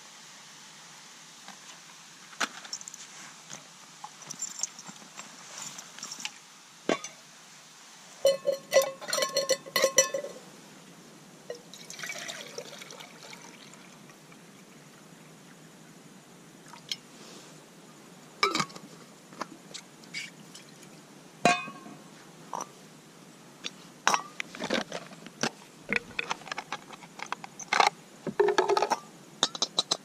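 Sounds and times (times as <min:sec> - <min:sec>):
ringing metal clinks: 0:08.3 - 0:10.4
water pouring into metal mug: 0:11.7 - 0:13.9.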